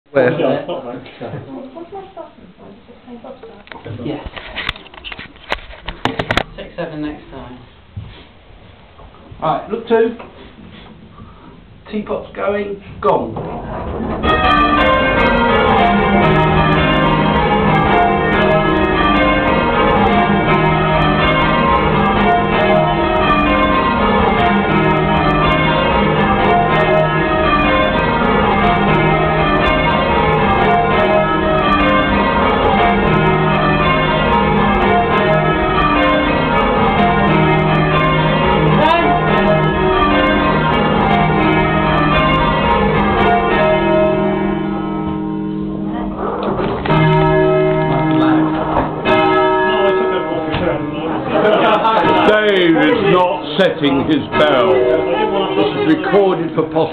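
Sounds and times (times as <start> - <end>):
church bells ringing in rounds: 13.4 - 56.9.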